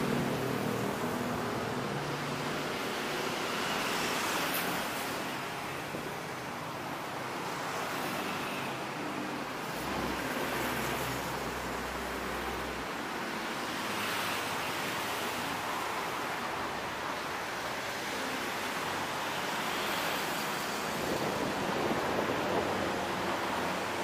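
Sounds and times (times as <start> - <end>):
motorcycles passing: 0.0 - 4.5
road traffic rushing: 0.0 - 24.0.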